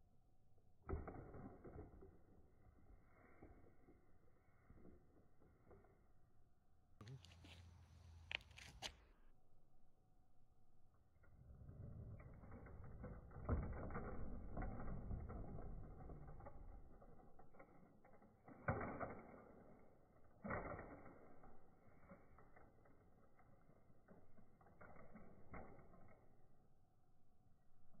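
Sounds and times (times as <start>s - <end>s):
toy truck knocking and landing: 0.8s - 4.2s, 11.3s - 26.8s.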